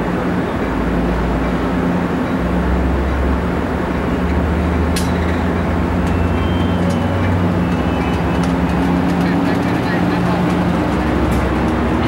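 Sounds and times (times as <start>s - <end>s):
train engine humming: 0.0s - 12.0s.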